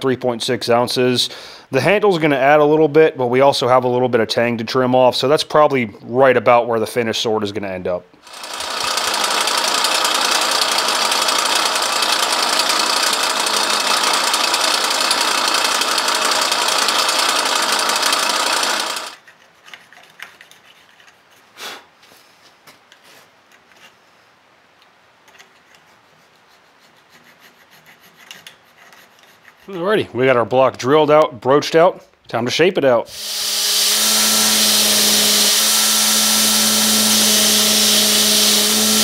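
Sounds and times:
power drill boring into wood: 8.2s - 19.2s, 33.1s - 39.0s.

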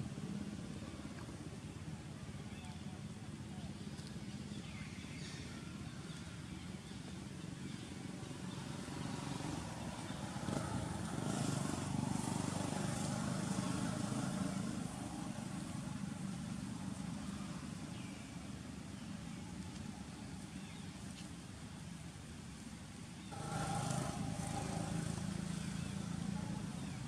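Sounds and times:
vehicle engine passing by: 8.5s - 17.7s, 23.3s - 27.0s.

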